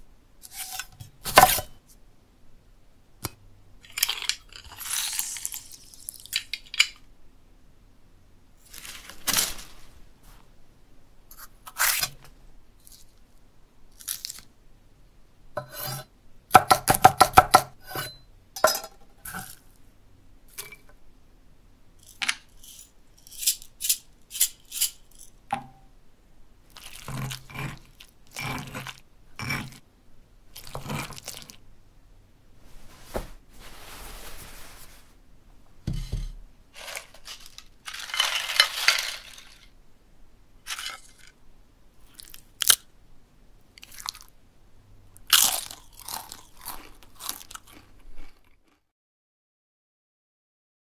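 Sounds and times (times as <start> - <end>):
knife chopping on board: 16.6 - 18.0
mashing in stone mortar: 26.7 - 29.8, 30.6 - 31.6.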